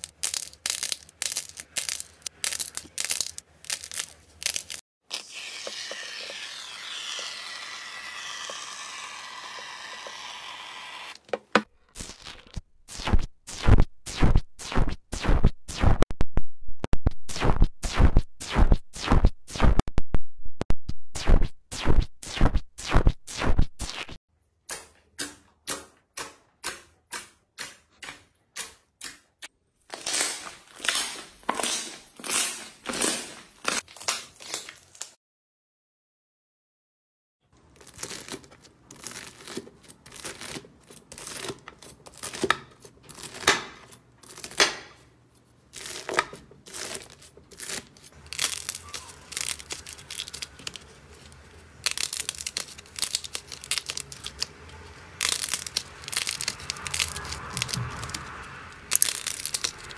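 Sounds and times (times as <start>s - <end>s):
slime crackling: 45.8s - 54.6s, 55.2s - 59.9s.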